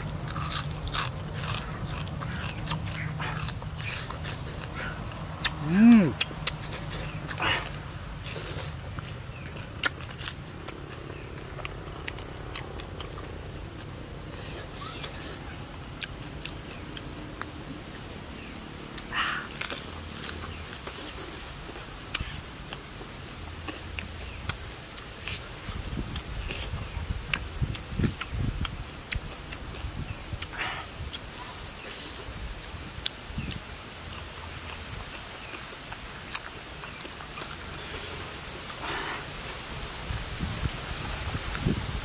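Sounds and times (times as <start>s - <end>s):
high insect tone: 0.0s - 42.0s
mouth clicks and smacks chewing: 32.0s - 38.9s
breathy puff: 38.8s - 39.3s.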